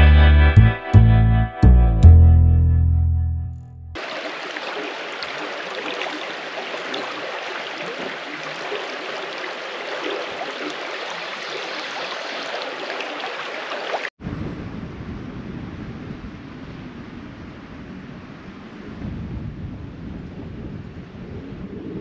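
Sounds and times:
creek running over stones: 4.0 - 14.1.

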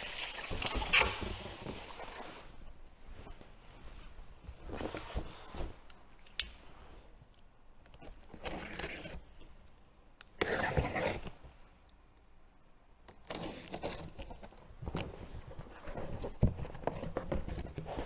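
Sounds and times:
packing tape and cardboard scraping: 8.2 - 9.3, 10.4 - 11.4, 13.1 - 14.6.

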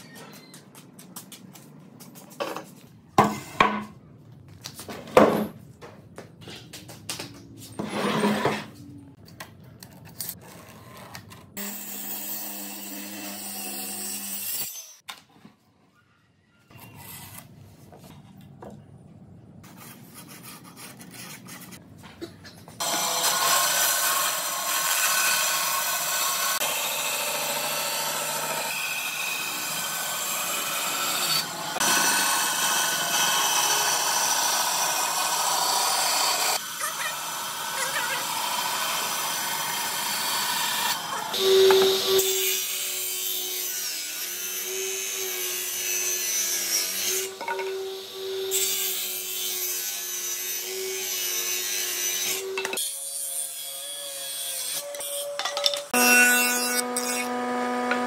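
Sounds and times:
bandsaw cutting wood: 11.6 - 15.0, 22.8 - 55.0, 55.9 - 58.0.

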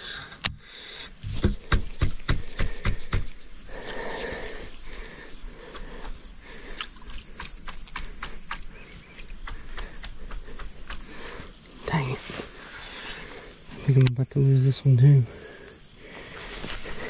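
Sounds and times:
crickets trilling: 0.0 - 17.0
sharp clicks and knocks: 1.2 - 3.4.

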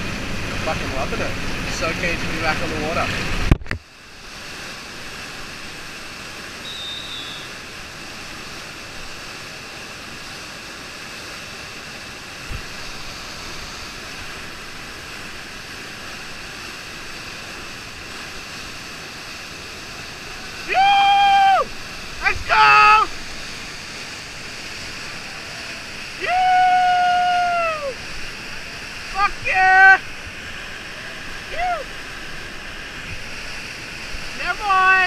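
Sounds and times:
whitewater rapid rushing: 0.0 - 35.0
person yelling: 20.6 - 23.1, 26.2 - 28.0, 29.1 - 30.0, 31.4 - 31.9, 34.4 - 35.0.

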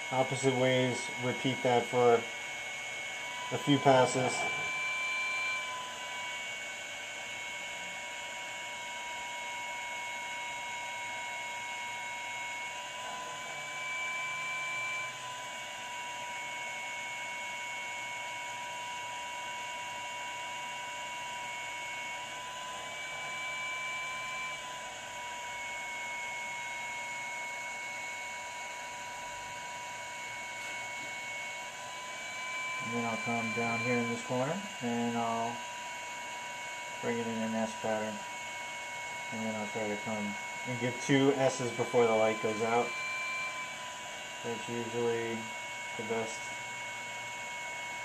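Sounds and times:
rework station electrical whine and hum: 0.0 - 48.0.

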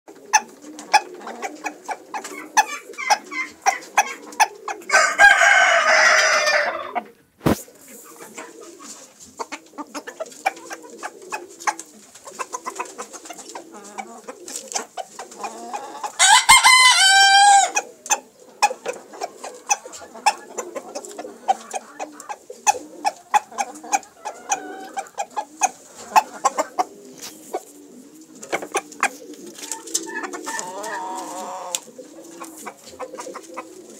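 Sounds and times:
rooster crowing: 4.9 - 7.0, 16.2 - 17.8.

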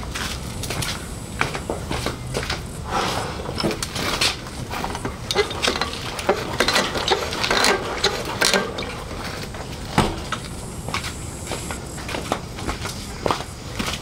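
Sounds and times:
metallic clicks and rattles: 3.6 - 9.6.

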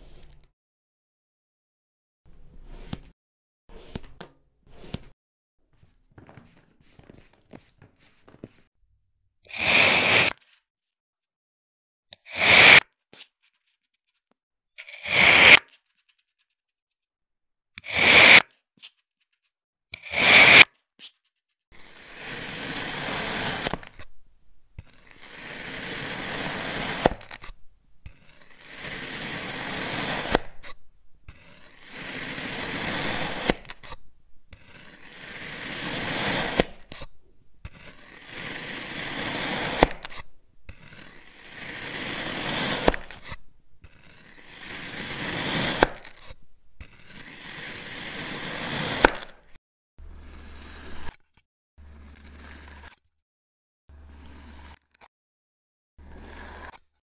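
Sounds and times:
knife slicing through packed sand: 3.7 - 5.2, 9.5 - 10.4, 12.3 - 12.8, 14.9 - 15.7, 17.8 - 18.4, 20.0 - 20.7, 21.7 - 24.2, 24.8 - 49.5.

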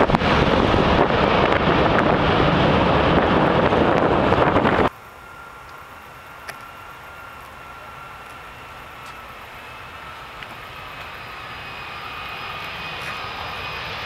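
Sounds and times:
wind buffeting microphone: 0.0 - 4.9
jet engines roaring: 0.0 - 14.0.

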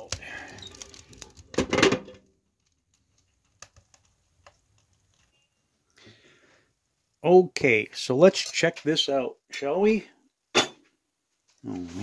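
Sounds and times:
metal pot scraping and clunking: 0.5 - 2.2, 8.2 - 8.9.

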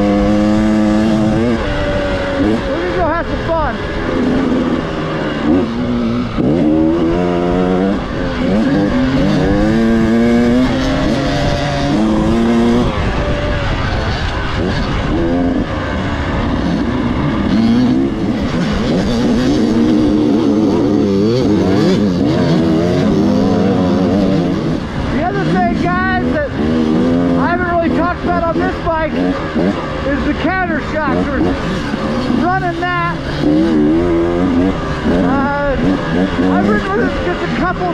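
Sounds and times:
wind noise on microphone: 0.0 - 21.4
dirt bike engine revving: 0.0 - 37.9.

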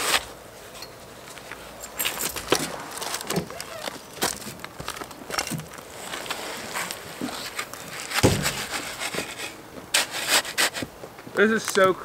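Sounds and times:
shovel blade jabbing and scraping: 7.4 - 10.8.

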